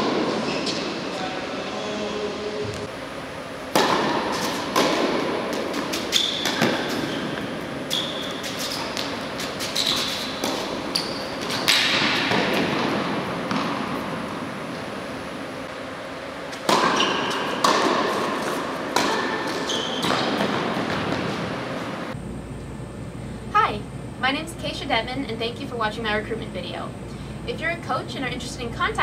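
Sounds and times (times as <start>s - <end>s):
sneakers squeaking on court: 0.1s - 1.0s, 4.2s - 14.8s, 16.5s - 21.8s
tennis racket hits: 3.7s - 14.9s, 16.5s - 21.8s
tennis ball bounces: 3.7s - 15.1s, 16.5s - 21.8s.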